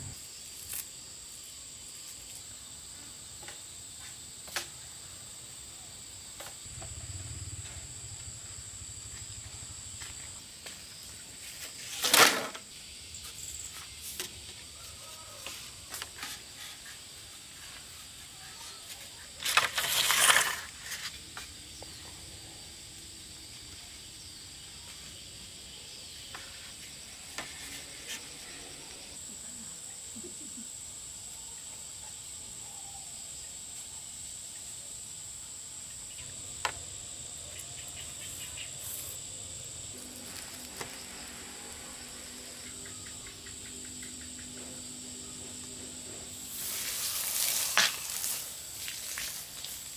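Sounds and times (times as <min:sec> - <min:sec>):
insects trilling: 0:00.0 - 0:49.9
poles scraping along soil: 0:15.4 - 0:21.5, 0:39.9 - 0:42.9, 0:45.6 - 0:49.9.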